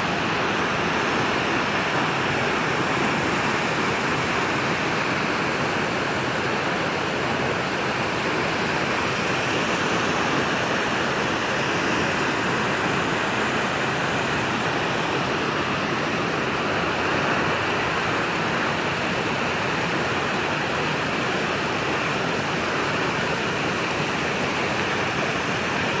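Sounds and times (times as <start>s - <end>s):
waterfall rushing over rocks: 0.0s - 26.0s.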